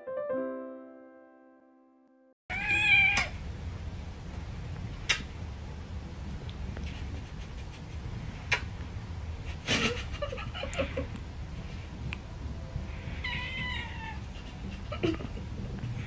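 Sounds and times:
piano music: 0.0 - 2.4, 12.3 - 13.6
cat meowing: 2.5 - 3.4, 13.1 - 14.2
steady low hum: 3.3 - 16.0.

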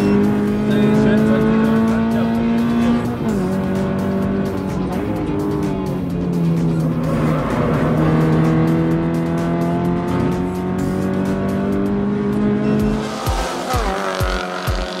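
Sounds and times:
car engine exhaust note: 0.0 - 15.0.

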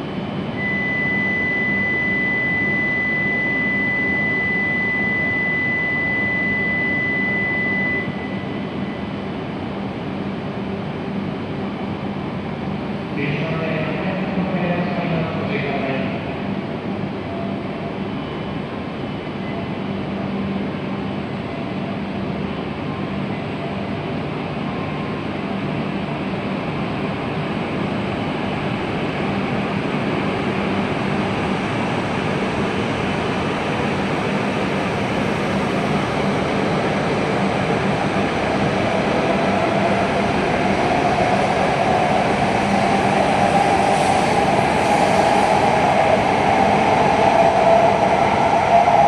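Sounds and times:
train running noise: 26.9 - 49.0.

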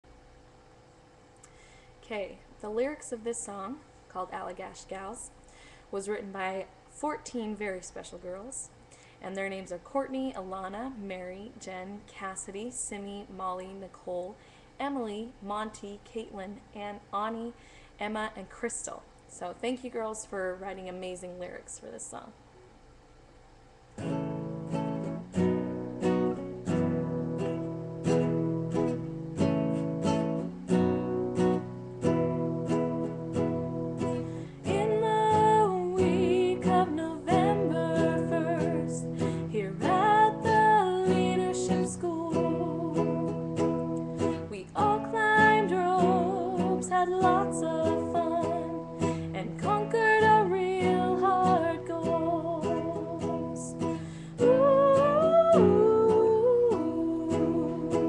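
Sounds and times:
acoustic guitar strumming: 24.0 - 58.0
person singing: 34.4 - 43.5, 44.2 - 58.0.

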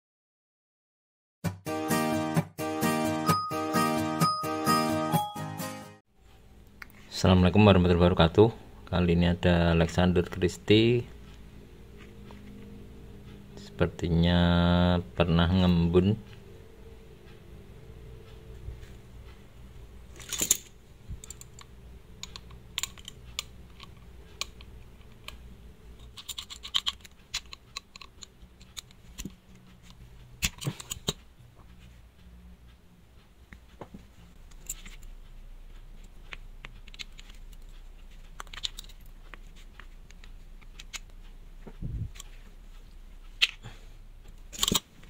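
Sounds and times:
wristwatch clicks and scrapes: 26.0 - 31.2, 34.5 - 35.1, 36.0 - 41.1.

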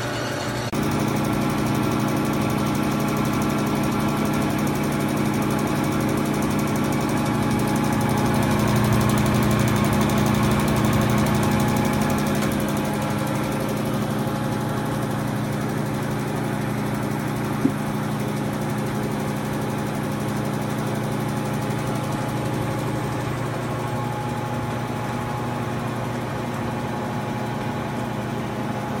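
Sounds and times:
surface grinder humming: 5.6 - 18.7.

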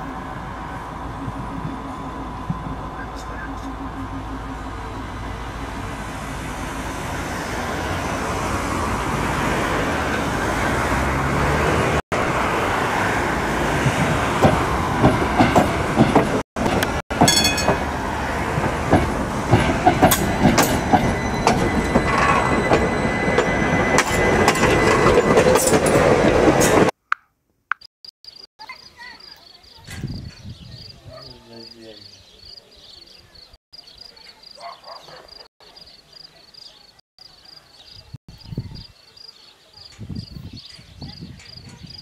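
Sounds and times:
tram rumbling: 0.0 - 27.0, 39.9 - 42.0
wheels clattering over rail joints: 13.9 - 26.9.

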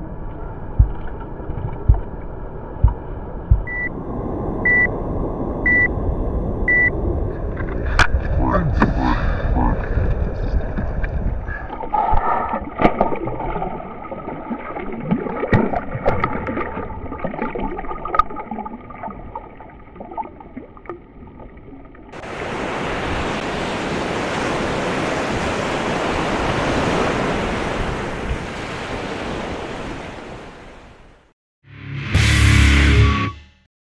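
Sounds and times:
water sloshing and splashing: 9.9 - 31.0
water rushing: 11.6 - 31.1.

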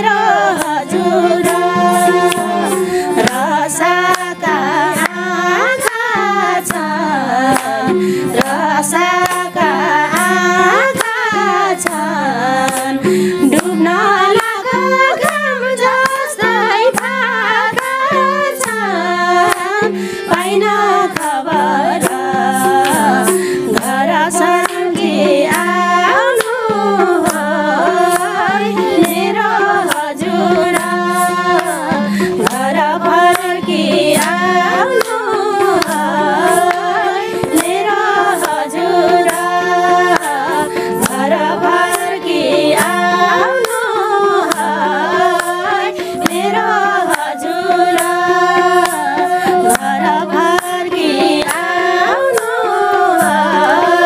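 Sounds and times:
harmonium drone: 0.0 - 54.0
rhythmic tapping beat: 0.0 - 54.0
women singing together: 0.0 - 54.0.

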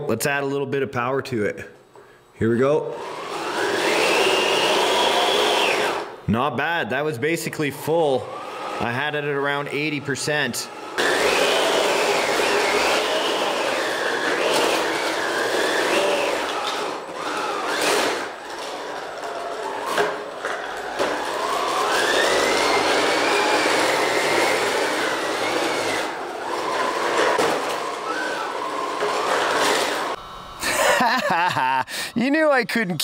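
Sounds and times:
toy truck motors and tracks whining: 3.0 - 6.2, 8.2 - 31.2.

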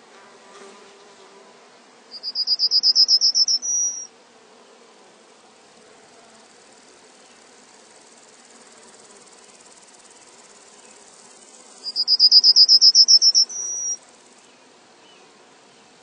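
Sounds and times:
crickets chirring: 2.1 - 4.1, 6.2 - 14.4.

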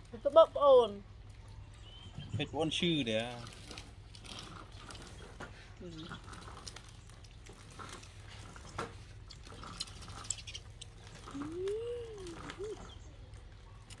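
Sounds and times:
monkey chewing corn: 6.0 - 14.0.

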